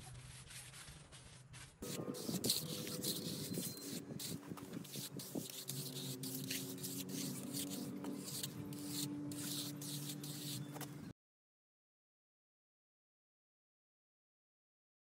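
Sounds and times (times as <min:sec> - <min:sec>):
trowel scraping wet cement: 0:00.0 - 0:11.0.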